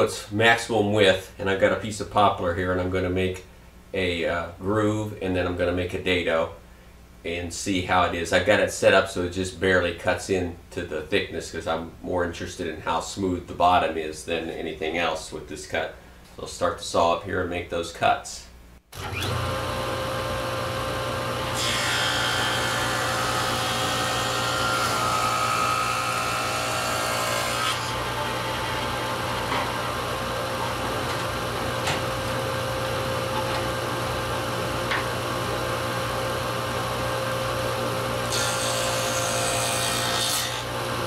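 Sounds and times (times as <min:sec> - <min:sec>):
table saw running: 0:19.0 - 0:41.0
saw cutting groove in wood: 0:21.3 - 0:31.8, 0:38.3 - 0:40.7.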